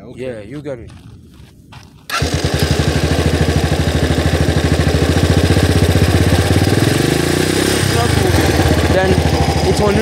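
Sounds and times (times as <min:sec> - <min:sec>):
motorcycle engine idling and revving: 0:02.1 - 0:10.0.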